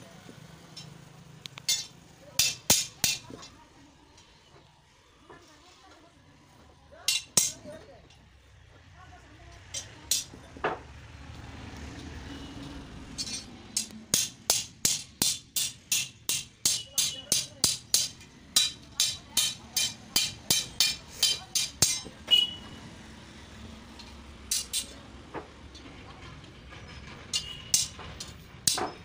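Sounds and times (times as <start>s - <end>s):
hammer striking iron bar: 1.7s - 3.5s, 7.1s - 7.7s, 9.7s - 10.4s, 13.2s - 22.6s, 24.5s - 25.0s, 27.3s - 29.0s.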